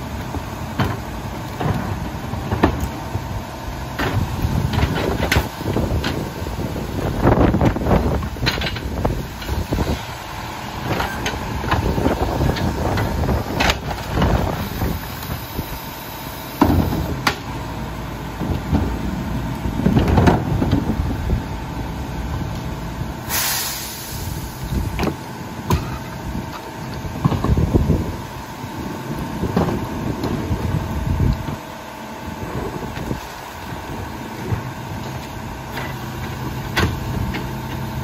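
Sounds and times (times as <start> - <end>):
carts clunking against hopper: 0.0 - 22.8, 24.7 - 38.0
diesel engine idling: 0.0 - 38.0
air release hiss: 23.2 - 24.9.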